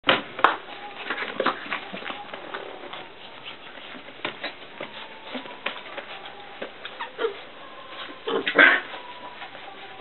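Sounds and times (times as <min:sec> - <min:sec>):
puppies scuffling in wooden pen: 0:00.1 - 0:10.0.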